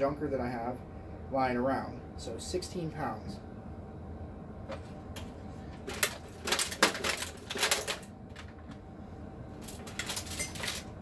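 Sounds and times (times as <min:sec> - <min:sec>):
metal computer case rattling: 0:05.8 - 0:08.8, 0:09.6 - 0:11.0.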